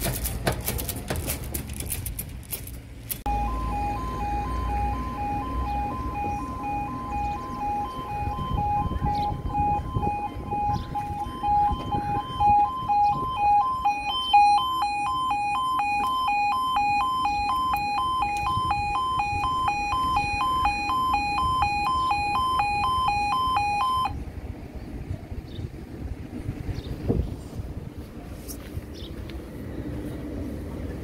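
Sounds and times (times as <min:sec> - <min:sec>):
level crossing alarm warbling: 0:03.3 - 0:24.2.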